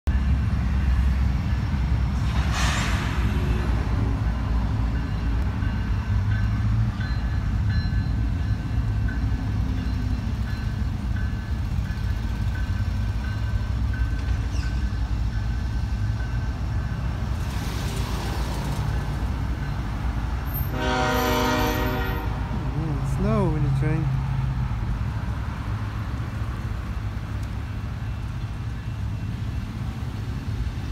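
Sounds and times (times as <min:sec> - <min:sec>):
freight train rumbling: 0:00.1 - 0:30.9
locomotive air horn chord: 0:20.7 - 0:22.5.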